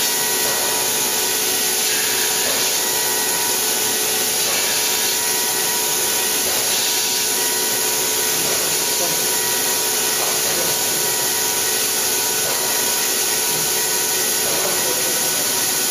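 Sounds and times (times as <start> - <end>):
milling spindle cutting steel hiss: 0.0 - 15.9.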